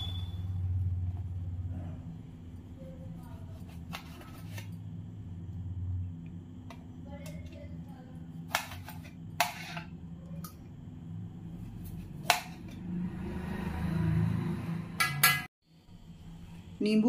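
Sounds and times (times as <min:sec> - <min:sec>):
low steady hum: 0:00.0 - 0:12.8.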